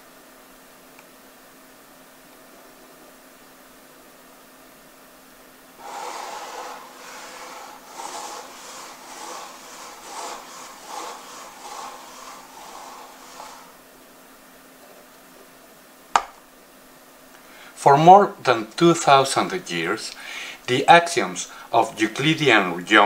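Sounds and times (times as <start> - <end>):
eraser rubbing on a blackboard: 5.8 - 13.8.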